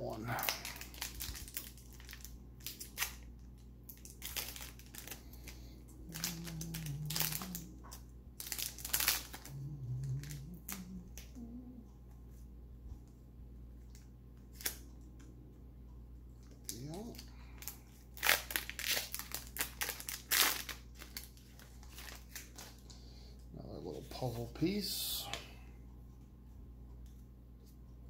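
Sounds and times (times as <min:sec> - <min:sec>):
foil wrapper crinkling: 0:00.2 - 0:03.3, 0:03.9 - 0:11.3, 0:16.6 - 0:22.9.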